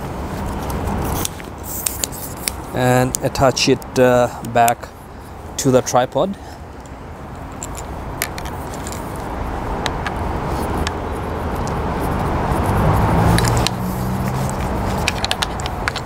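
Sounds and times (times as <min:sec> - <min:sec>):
road traffic noise: 0:00.0 - 0:16.0
vehicle engine hum: 0:00.0 - 0:16.0
tripod leg clicks: 0:06.8 - 0:10.2, 0:13.3 - 0:16.0.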